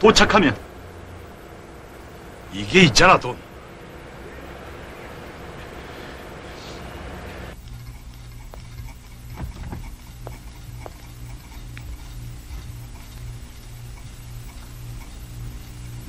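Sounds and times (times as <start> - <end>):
pulsing low hum: 0.0 - 16.0
footsteps on hard floor: 8.4 - 12.7.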